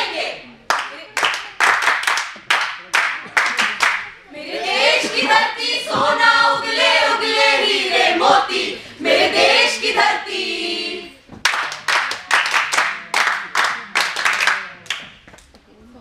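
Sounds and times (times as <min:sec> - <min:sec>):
group singing in unison: 0:00.0 - 0:00.4, 0:04.3 - 0:11.2
rhythmic hand clapping: 0:00.0 - 0:04.2, 0:04.8 - 0:06.9, 0:11.4 - 0:15.5.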